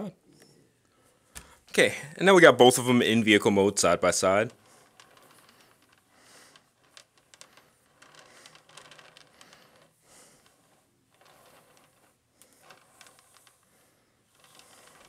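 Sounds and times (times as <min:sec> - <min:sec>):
plastic turntable rubbing: 0:03.1 - 0:15.0.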